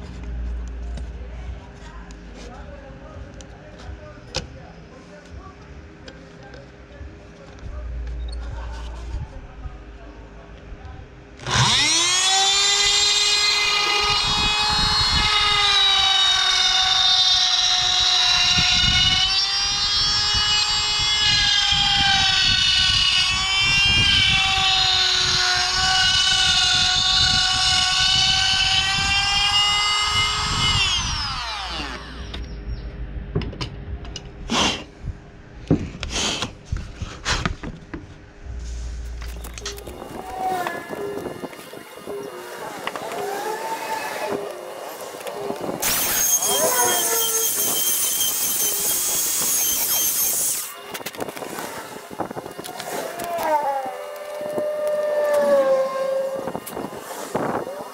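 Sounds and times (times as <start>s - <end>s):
power tool motor whine: 11.4s - 32.5s, 39.2s - 57.9s.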